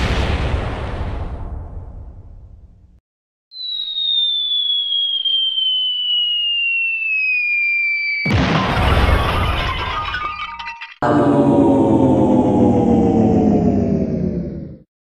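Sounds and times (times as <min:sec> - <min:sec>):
explosion rumble: 0:00.0 - 0:02.9, 0:08.3 - 0:14.8
falling whistle: 0:03.5 - 0:11.0
loud thud: 0:08.3 - 0:11.2
noisy crashing: 0:08.3 - 0:13.0.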